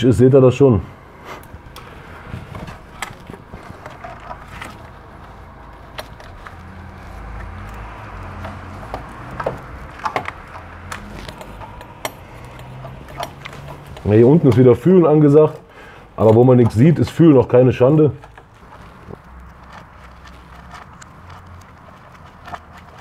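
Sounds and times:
hands handling engine parts: 1.3s - 23.0s.

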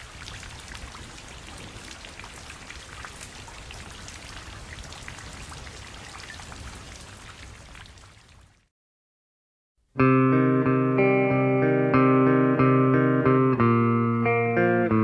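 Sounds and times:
steady rain falling: 0.0s - 8.7s.

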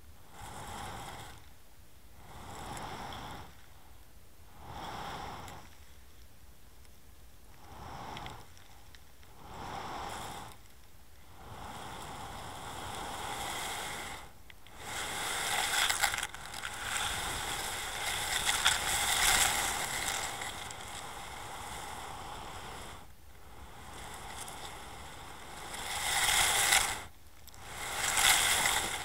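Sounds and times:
camera dragging over gravel underwater: 13.3s - 21.9s, 25.4s - 29.0s.

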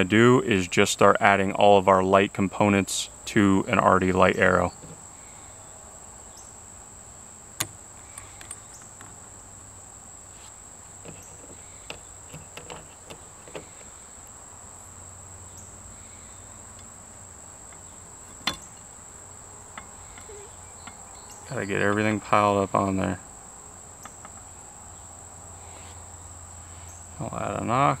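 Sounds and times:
steady high-pitched whine: 0.0s - 28.0s.

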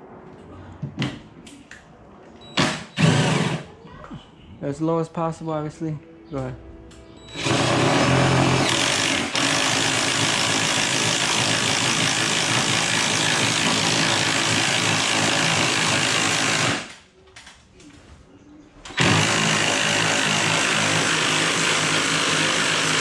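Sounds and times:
drill boring into wood: 2.6s - 3.7s, 7.3s - 17.0s, 18.9s - 23.0s.

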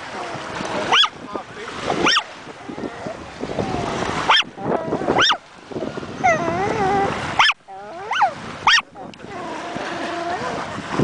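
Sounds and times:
small dog yapping: 0.9s - 1.1s, 2.0s - 2.2s, 4.3s - 4.5s, 5.1s - 5.4s, 6.2s - 8.9s.

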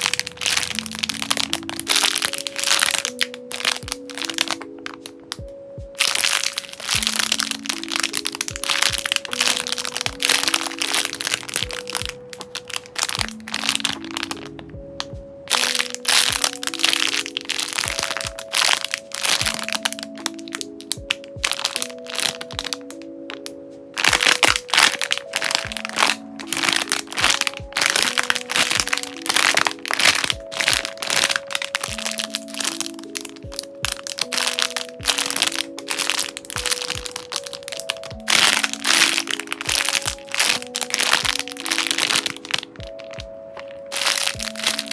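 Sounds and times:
plastic bags crinkling: 0.0s - 14.6s, 15.5s - 44.9s
soft background music: 0.0s - 44.9s.

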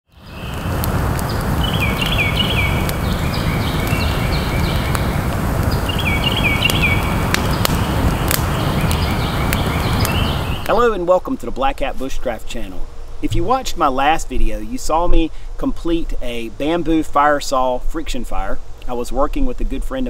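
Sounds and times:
bird chirping: 0.1s - 10.8s
fire low rush: 0.1s - 11.1s
campfire crackles: 0.1s - 20.0s.

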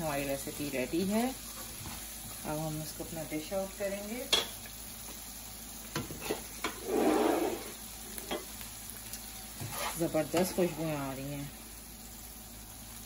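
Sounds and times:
curry sizzling faintly in a pan: 0.0s - 13.0s
stirring scrape: 6.1s - 7.8s, 9.6s - 10.8s.

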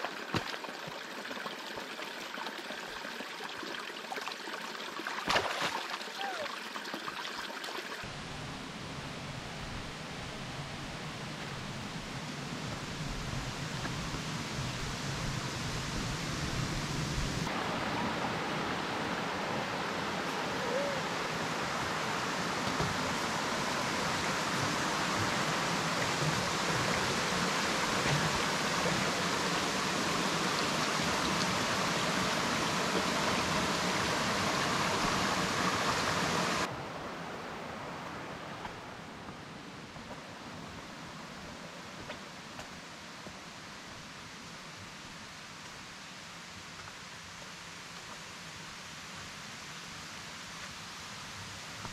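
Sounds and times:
creek water rushing: 0.0s - 51.9s.

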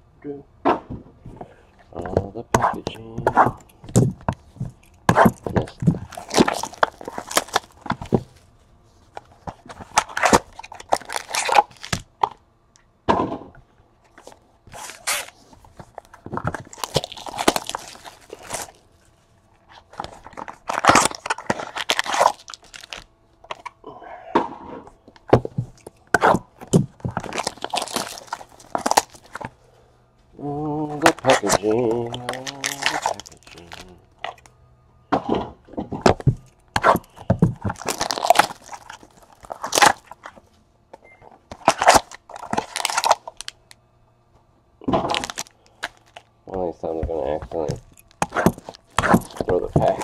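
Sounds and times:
cardboard packaging tearing: 2.6s - 8.4s, 9.2s - 12.1s, 14.1s - 19.1s, 19.7s - 23.7s, 25.3s - 29.5s, 30.8s - 34.4s, 36.0s - 40.4s, 41.5s - 43.6s, 44.9s - 46.3s, 47.2s - 50.0s.

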